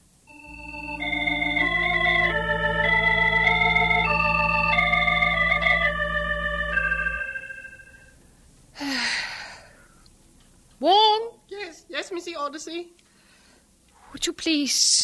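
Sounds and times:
organ chords: 0.0s - 8.2s.

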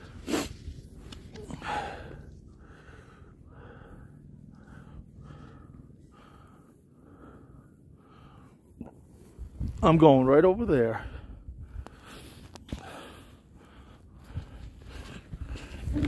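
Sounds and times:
person breathing hard: 1.4s - 9.3s, 11.0s - 16.0s
wind rumbling on microphone: 9.3s - 10.0s, 11.0s - 12.0s, 14.2s - 16.0s.

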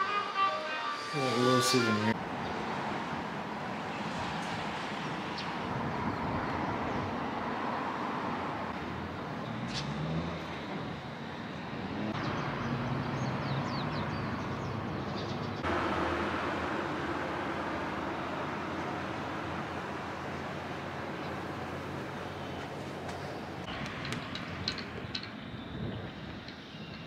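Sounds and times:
traffic and vehicle engines: 0.0s - 27.0s.

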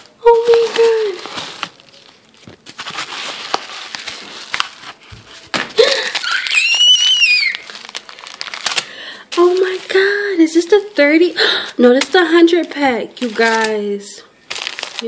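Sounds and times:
packaging rustling and crinkling: 0.0s - 15.0s
woman squealing excitedly: 5.8s - 7.7s.

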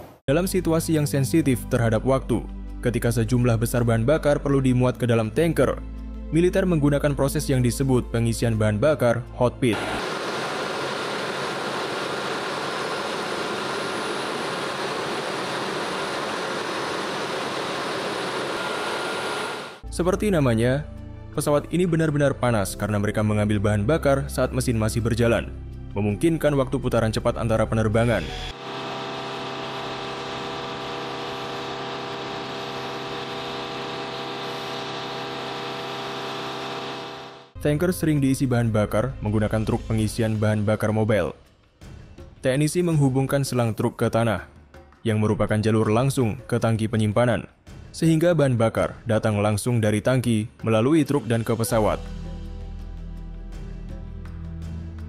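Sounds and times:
jet engines roaring: 9.8s - 19.8s.

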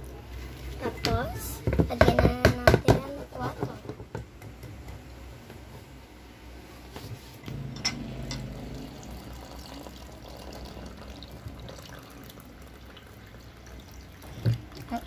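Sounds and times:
water pouring into mug: 8.0s - 15.0s.

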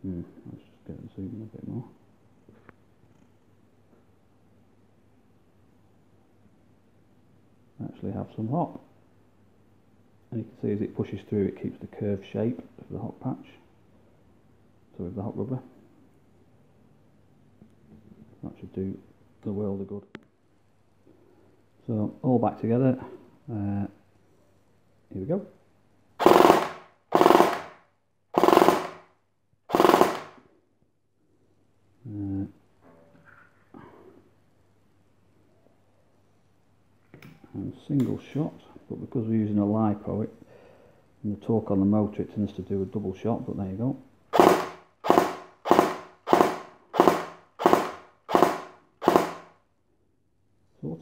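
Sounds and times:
airsoft rifle automatic bursts: 26.2s - 30.4s, 44.3s - 49.6s.

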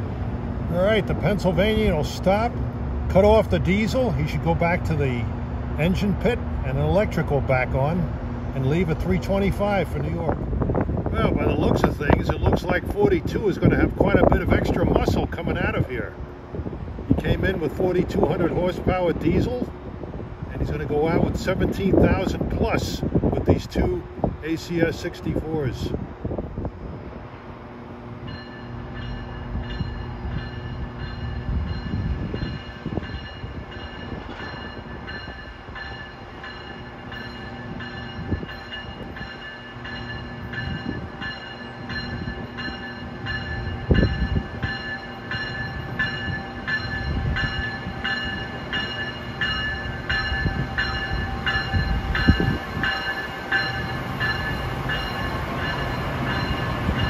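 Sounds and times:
locomotive bell ringing: 28.1s - 57.0s.

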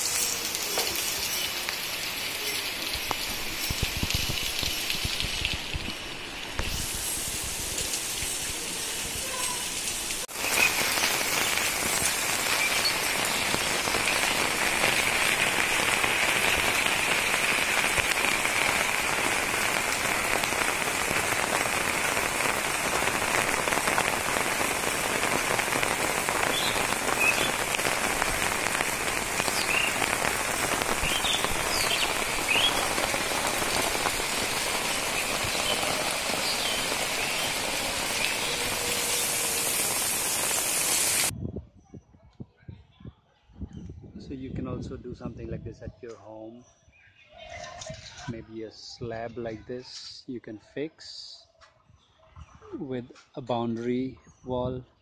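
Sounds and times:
steady rain falling: 0.0s - 41.3s.

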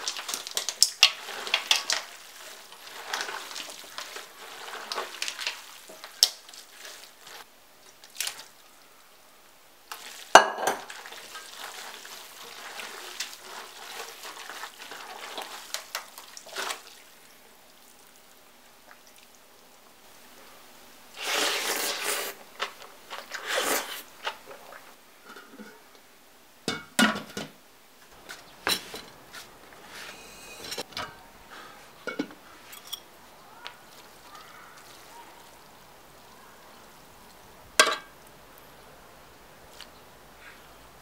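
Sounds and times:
wet squishing of noodles: 0.0s - 9.1s, 9.8s - 20.0s, 21.1s - 25.0s, 33.2s - 37.5s
clinks of steel pot and dishes: 10.4s - 10.9s, 26.7s - 27.5s, 32.0s - 33.1s, 37.8s - 38.1s.

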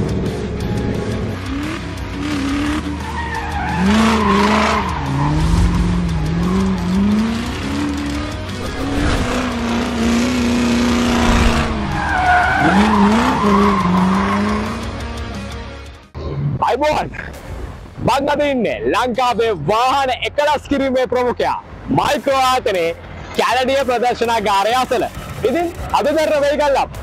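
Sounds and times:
music: 0.0s - 12.4s, 13.2s - 16.5s
car engine revving: 1.1s - 15.3s
tyres squealing: 11.0s - 14.7s.

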